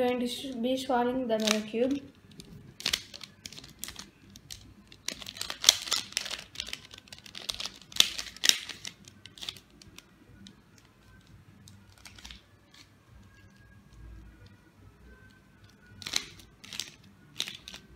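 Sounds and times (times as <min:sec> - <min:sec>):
puzzle cube plastic clicks: 0:01.4 - 0:10.1, 0:15.6 - 0:17.9.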